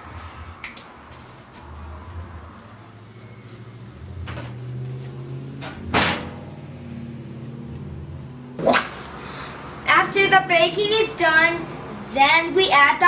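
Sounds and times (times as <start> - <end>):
oven door banging shut: 5.6 - 6.4.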